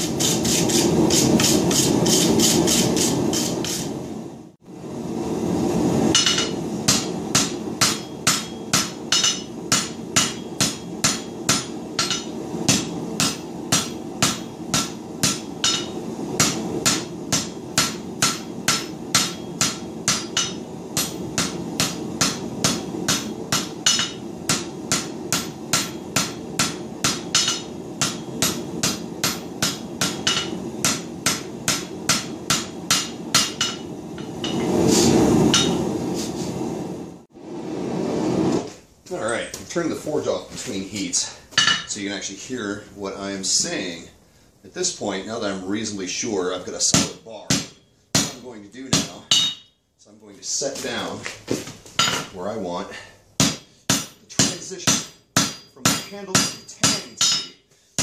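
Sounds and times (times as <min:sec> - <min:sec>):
forge running: 0:00.0 - 0:44.1
hammer striking metal on anvil: 0:06.1 - 0:34.7, 0:35.5 - 0:35.8, 0:41.6 - 0:41.9, 0:46.9 - 0:49.7, 0:52.0 - 0:52.4, 0:53.4 - 0:58.0.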